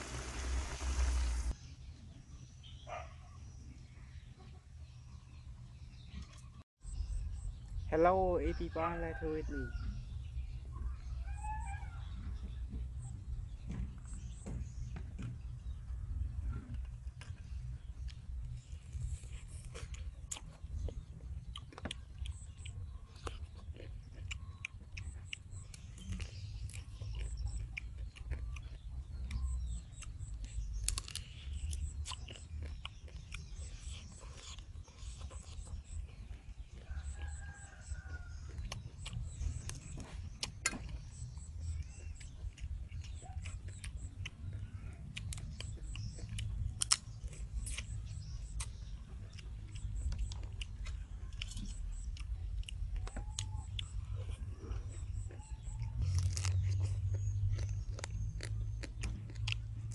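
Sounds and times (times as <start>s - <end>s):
chewing: 15.6s - 59.9s
crab shell crunching: 30.8s - 39.8s, 55.4s - 59.9s
rooster crowing: 36.8s - 38.6s.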